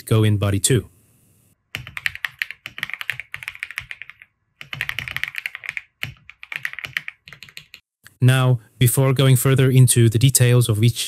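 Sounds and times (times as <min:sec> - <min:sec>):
typing on a computer keyboard: 0:01.7 - 0:07.8.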